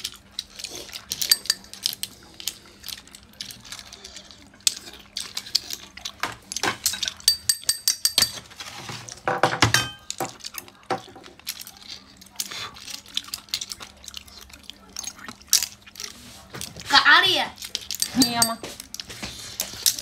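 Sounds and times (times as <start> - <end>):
clam shells clinking in metal bowl: 1.1 - 2.0, 6.8 - 8.4, 17.8 - 19.0.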